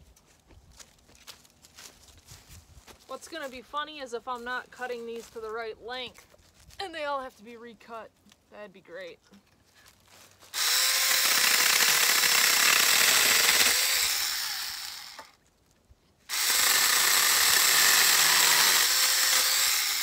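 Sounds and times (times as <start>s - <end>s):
small chainsaw cutting branch: 10.5s - 15.4s, 16.3s - 20.0s.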